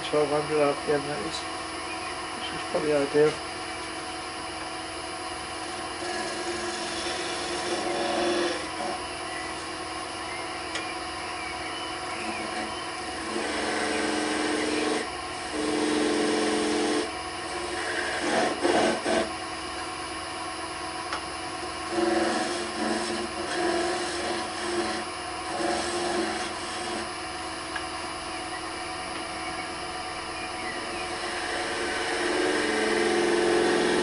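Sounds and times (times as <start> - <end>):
wood lathe motor running: 0.0 - 34.0
turning tool scraping wood: 5.3 - 9.8, 11.9 - 19.5, 21.6 - 27.2, 30.7 - 34.0.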